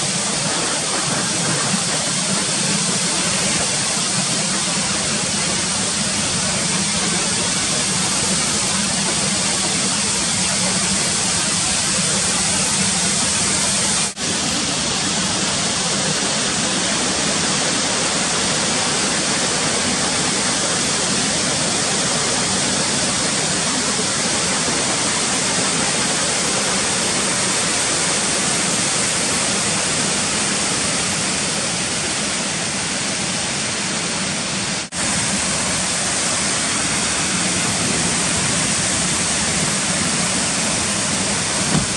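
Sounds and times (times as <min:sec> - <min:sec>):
waterfall rushing: 0:00.0 - 0:41.9.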